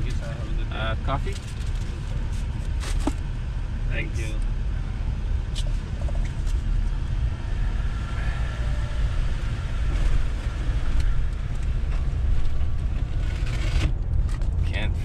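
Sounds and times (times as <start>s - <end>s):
truck engine rumble: 0.0s - 15.0s.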